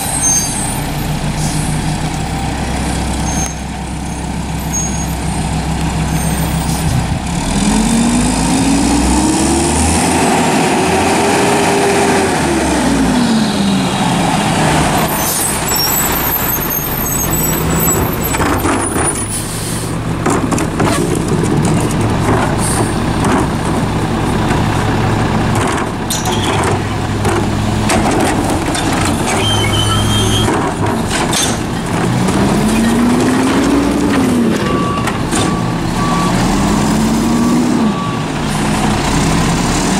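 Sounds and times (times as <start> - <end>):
garbage truck diesel engine: 0.0 - 39.9
trash cart clanking and banging: 14.7 - 39.5.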